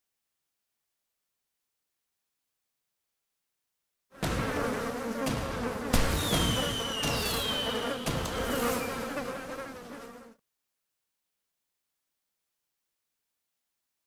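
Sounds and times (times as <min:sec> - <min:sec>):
firework bangs: 0:04.2 - 0:09.3
fireworks crackle: 0:05.5 - 0:09.2
firework whistles falling in pitch: 0:06.0 - 0:09.1.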